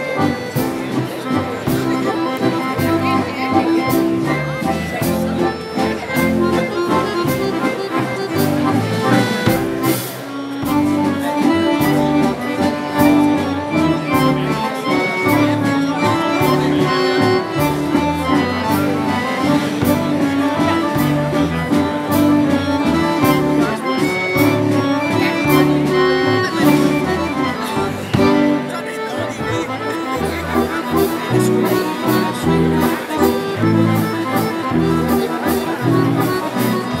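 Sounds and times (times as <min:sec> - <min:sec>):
accordions playing melody: 0:00.0 - 0:37.0
drum kit steady beat: 0:05.8 - 0:12.4, 0:17.6 - 0:28.6.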